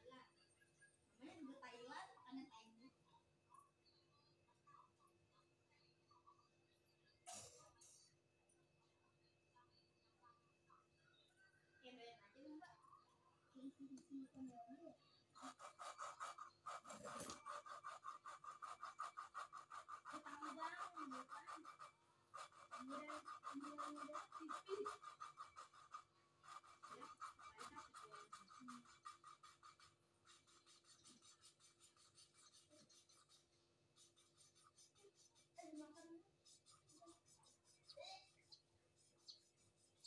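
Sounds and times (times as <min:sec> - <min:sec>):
gritty rasping of valve lapping: 0:15.3 - 0:40.0.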